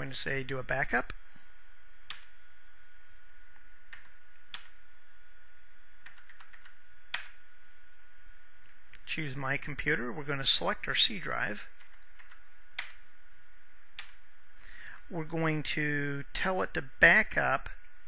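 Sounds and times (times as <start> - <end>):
faint steady hiss: 0.0 - 18.0
thin high hum: 0.0 - 18.0
computer mouse clicks: 2.0 - 2.3, 3.9 - 4.8, 6.0 - 7.4, 11.8 - 13.0, 14.0 - 14.2.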